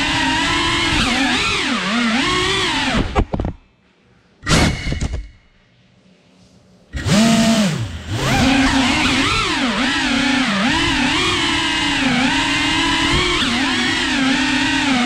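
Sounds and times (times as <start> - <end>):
drone motors whining: 0.0 - 3.3, 6.9 - 15.0.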